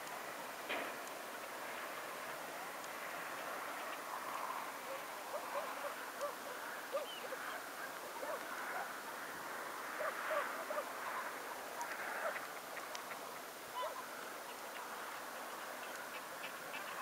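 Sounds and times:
steady background hiss: 0:00.0 - 0:17.0
swans honking: 0:10.3 - 0:17.0.

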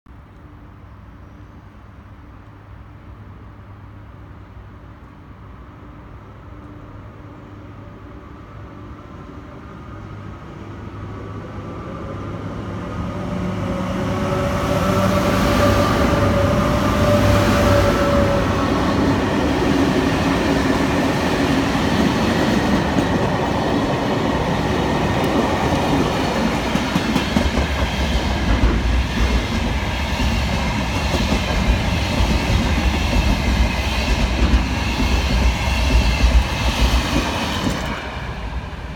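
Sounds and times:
locomotive whine: 0:10.0 - 0:38.9.

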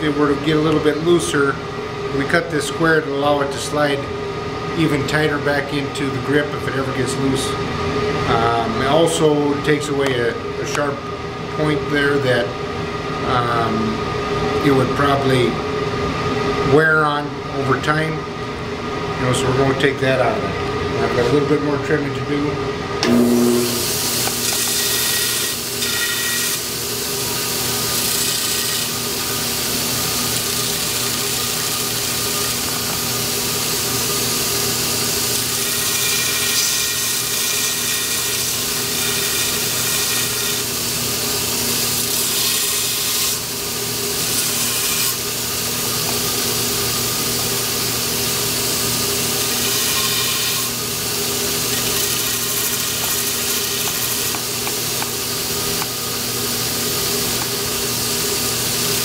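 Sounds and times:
dust collector running: 0:00.0 - 0:59.0
grinding wheel: 0:23.0 - 0:26.6.

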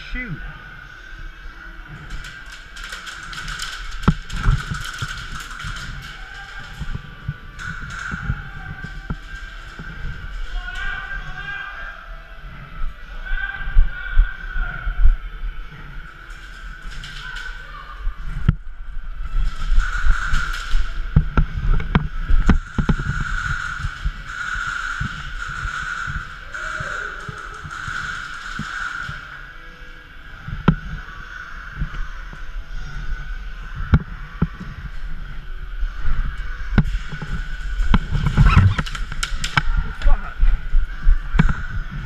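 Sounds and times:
steady background hum: 0:00.0 - 0:42.0
low rumbling footsteps: 0:01.8 - 0:29.2, 0:30.3 - 0:42.0
low rumble: 0:30.0 - 0:42.0.

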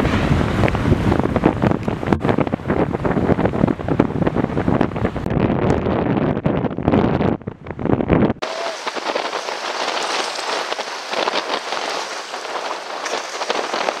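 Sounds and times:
wind buffeting microphone: 0:00.0 - 0:14.0
splashing water hiss: 0:08.4 - 0:14.0.

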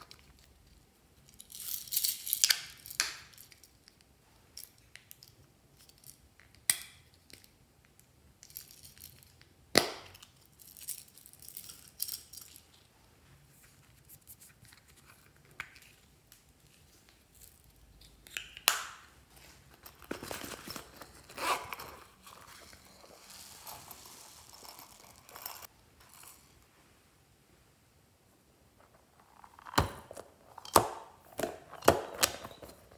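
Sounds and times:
plastic crinkling and rustling: 0:19.2 - 0:26.6.

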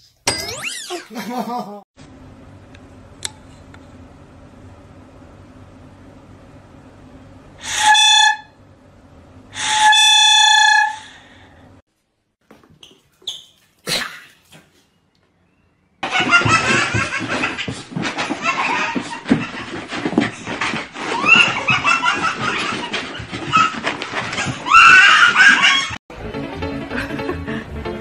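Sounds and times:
plastic toy horn blasts: 0:07.6 - 0:08.4, 0:09.6 - 0:11.1.

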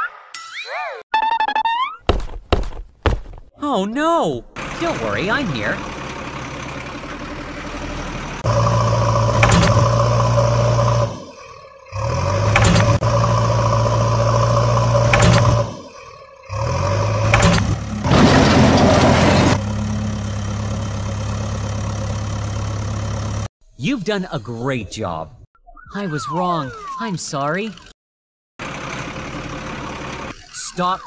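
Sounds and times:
construction machine engine running: 0:04.5 - 0:23.5, 0:28.6 - 0:30.6.

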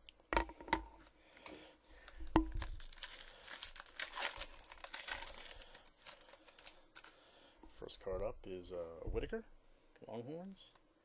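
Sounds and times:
wrapper tearing and crinkling: 0:02.5 - 0:07.2.

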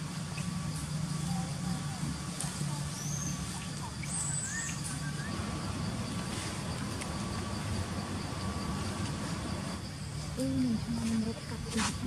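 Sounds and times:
high-pitched chirps and whistles: 0:04.0 - 0:05.8
steady low rumble: 0:04.8 - 0:12.0.

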